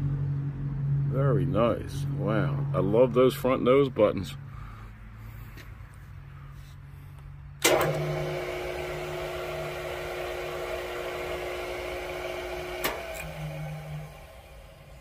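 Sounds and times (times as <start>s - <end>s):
saw motor humming and whining: 7.6s - 15.0s.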